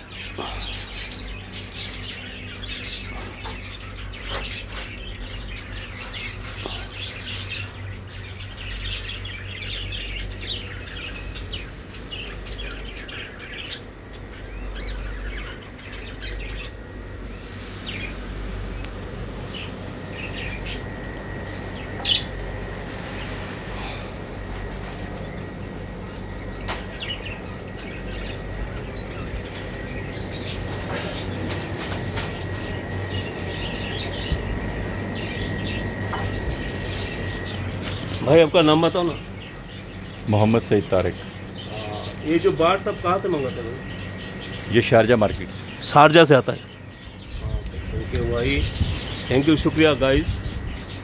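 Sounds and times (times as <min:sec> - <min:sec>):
caged birds chirping: 0:00.0 - 0:51.0
low steady hum: 0:00.0 - 0:51.0.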